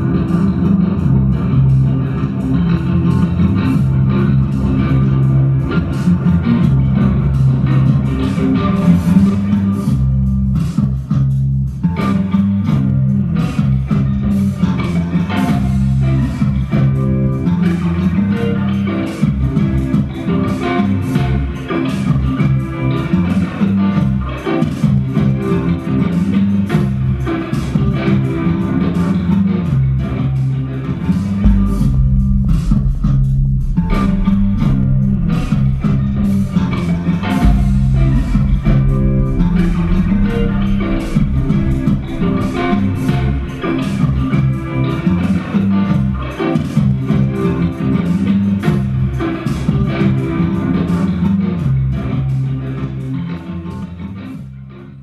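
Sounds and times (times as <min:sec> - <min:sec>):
low bass notes: 0:00.0 - 0:23.2, 0:27.8 - 0:48.2
electric guitar: 0:00.0 - 0:55.0
percussion hits: 0:31.4 - 0:45.6.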